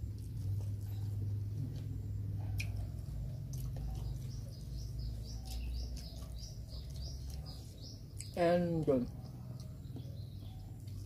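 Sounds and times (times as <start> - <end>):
low background rumble: 0.0 - 11.0
small bird chirping: 2.1 - 11.0.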